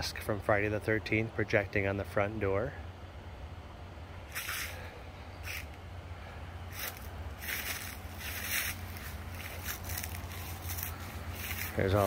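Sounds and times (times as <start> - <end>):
steady low hum: 0.0 - 12.0
footsteps crunching dry leaves: 4.3 - 5.8, 6.7 - 12.0.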